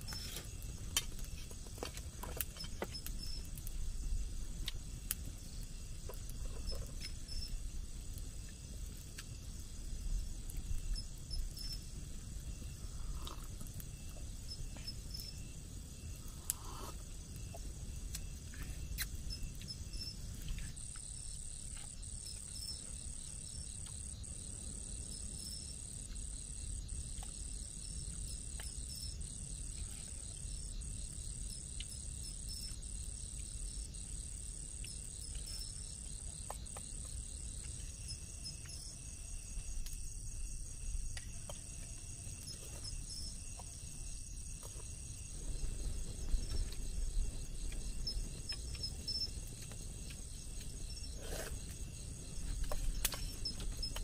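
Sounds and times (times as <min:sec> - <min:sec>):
insects trilling: 0:00.0 - 0:54.0
fast pulsing insect trill: 0:18.7 - 0:54.0.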